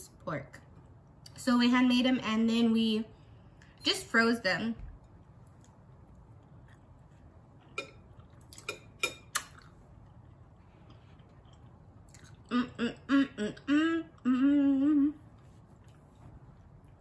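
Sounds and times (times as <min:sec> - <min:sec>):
woman humming mm sounds: 0:12.4 - 0:15.4.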